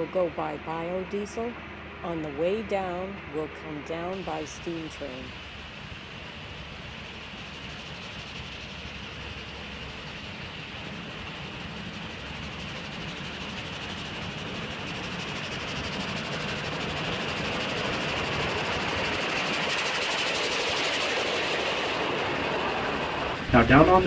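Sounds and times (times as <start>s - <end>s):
steam locomotive rolling past: 0.0s - 24.0s.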